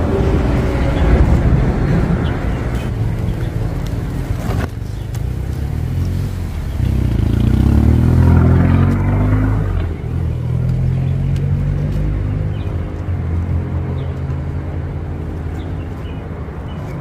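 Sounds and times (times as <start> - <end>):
low rumble: 0.0 - 12.8
vehicle engine accelerating: 0.0 - 17.0.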